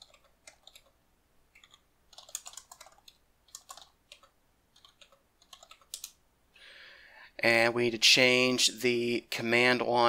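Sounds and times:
keyboard keys clicking: 1.6s - 6.2s.

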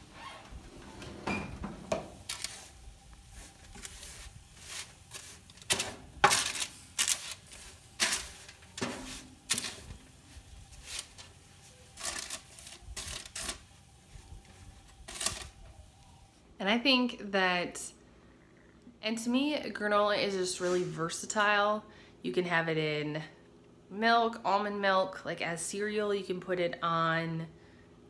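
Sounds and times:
wooden spoon stirring dry oats: 2.2s - 15.5s
parchment paper crinkling: 2.2s - 15.9s.

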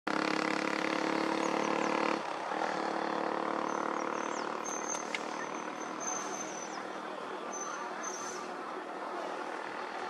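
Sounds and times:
bus diesel engine running: 0.1s - 10.0s
small bird chirps: 3.7s - 6.8s.

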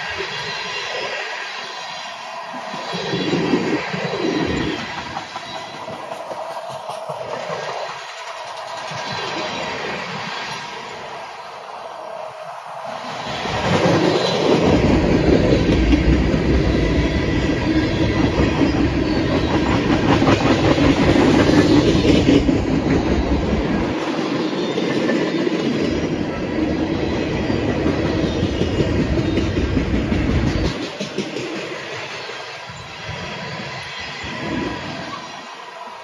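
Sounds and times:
freight train rumbling past: 0.0s - 36.0s
train wheels clacking on rail joints: 4.0s - 10.8s, 13.4s - 26.8s, 27.4s - 32.6s.

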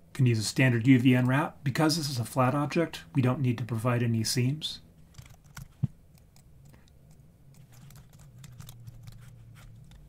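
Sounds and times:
low steady hum: 0.0s - 10.0s
keyboard typing: 5.0s - 10.0s.

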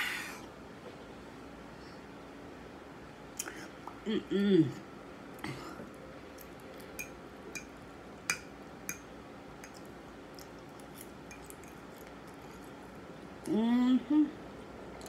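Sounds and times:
faint room hiss: 0.0s - 15.0s
soft chewing: 5.3s - 7.7s, 9.0s - 13.6s.

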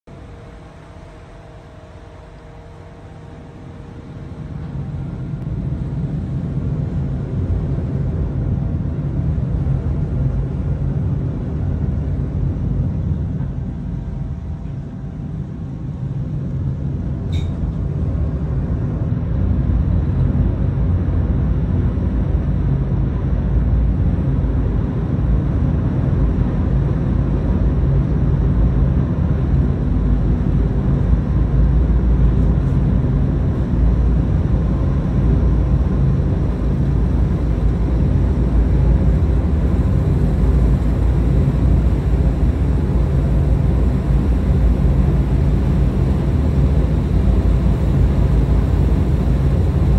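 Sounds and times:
ship engine rumble: 0.1s - 10.6s, 26.2s - 49.9s.

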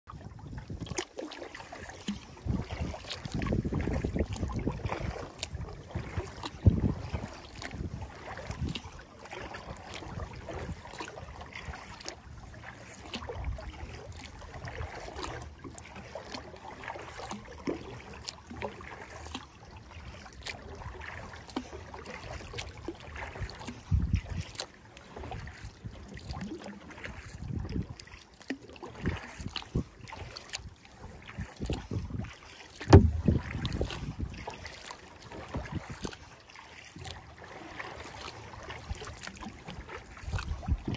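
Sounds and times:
paddle splashes: 0.1s - 40.9s
water slapping against hull: 0.1s - 40.9s
wind buffeting microphone: 2.3s - 8.8s, 23.8s - 24.4s, 31.3s - 32.3s, 32.9s - 34.5s, 40.3s - 40.9s.

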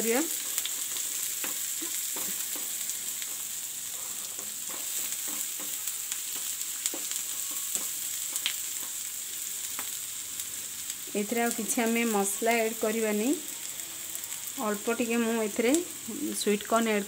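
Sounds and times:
vegetables sizzling in oil: 0.0s - 17.0s
spatula scraping and tapping pan: 0.4s - 9.1s.

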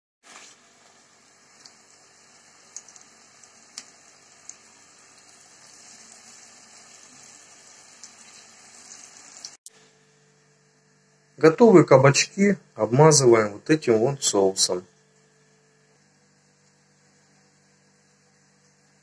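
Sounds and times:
oil sizzling in a frying pan: 0.2s - 9.6s.

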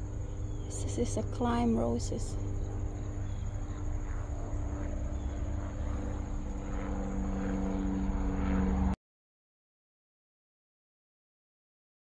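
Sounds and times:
engine drone: 0.0s - 9.0s.

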